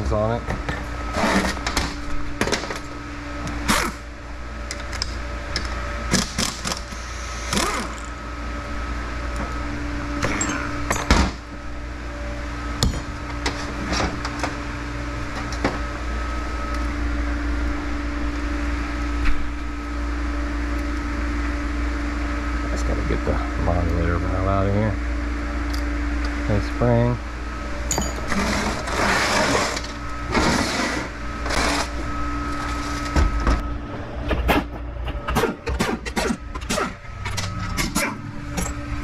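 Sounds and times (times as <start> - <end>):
steady hum: 0.0 - 39.0
metal parts knocking and clinking: 27.9 - 28.4.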